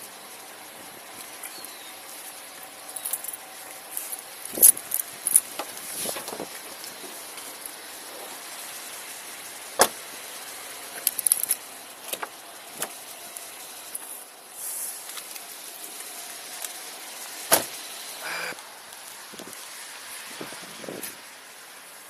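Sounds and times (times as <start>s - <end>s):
steady background hiss: 0.0s - 22.0s
keys jingling: 2.9s - 3.4s, 11.0s - 11.6s
car doors shutting: 9.8s - 10.0s, 17.5s - 18.6s.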